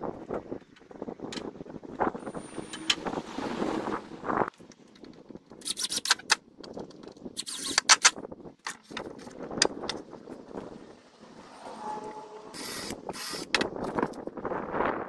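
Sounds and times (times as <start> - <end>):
cordless drill driving screws: 12.6 - 13.6.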